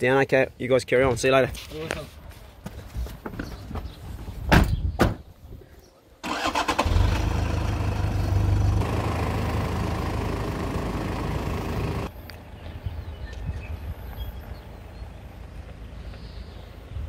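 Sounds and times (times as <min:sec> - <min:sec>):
car engine cranking and running: 0:06.2 - 0:12.1.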